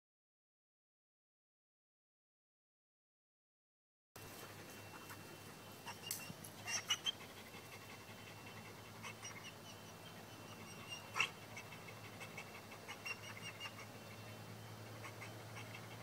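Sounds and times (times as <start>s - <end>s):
dog panting: 4.2s - 16.0s.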